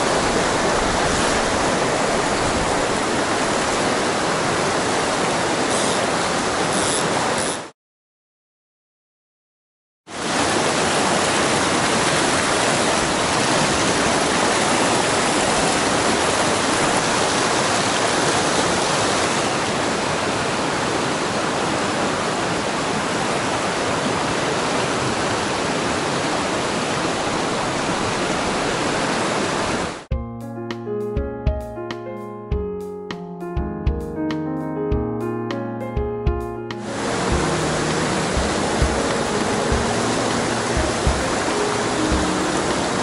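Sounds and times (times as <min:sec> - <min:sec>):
stream rushing over rocks: 0:00.0 - 0:07.6, 0:10.1 - 0:30.1, 0:36.8 - 0:43.0.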